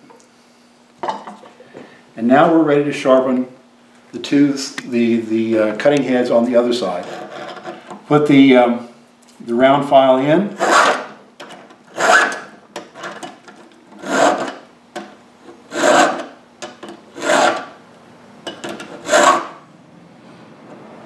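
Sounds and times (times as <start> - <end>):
file scraping saw chain: 6.9 - 7.9, 10.6 - 11.1, 11.9 - 13.2, 14.0 - 14.6, 15.7 - 16.4, 17.1 - 17.7, 18.7 - 19.6.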